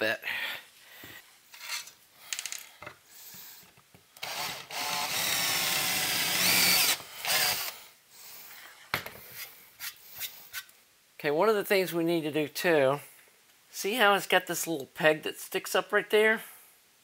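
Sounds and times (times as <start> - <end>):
drill whining through metal: 4.2 - 7.8.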